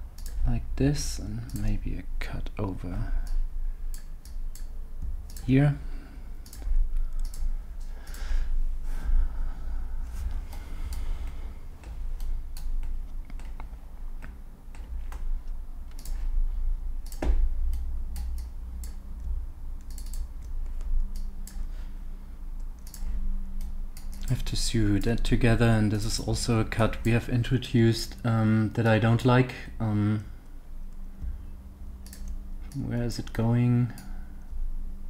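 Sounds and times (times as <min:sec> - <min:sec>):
steady low rumble: 0:00.0 - 0:35.0
computer mouse and keyboard clicks: 0:06.4 - 0:08.2, 0:10.5 - 0:16.3, 0:17.0 - 0:21.7, 0:22.6 - 0:24.3, 0:32.0 - 0:32.8.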